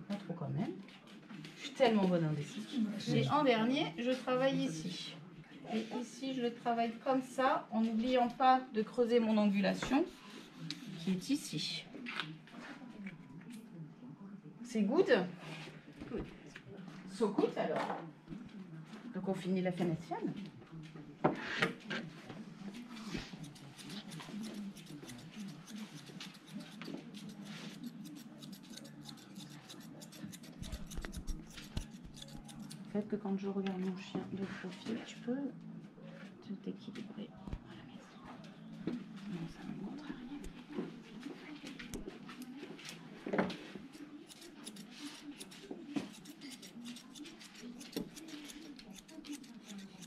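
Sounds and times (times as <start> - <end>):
scissors snipping through fur: 22.7 - 32.9, 41.8 - 43.0, 43.8 - 50.0.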